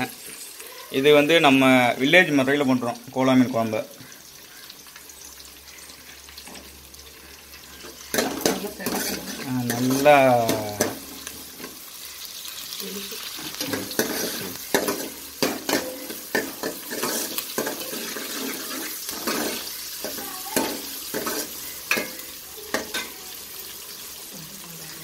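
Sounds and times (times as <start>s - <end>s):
onions sizzling in hot oil: 0.0s - 25.0s
metal ladle scraping pot: 8.1s - 11.8s, 13.6s - 22.2s.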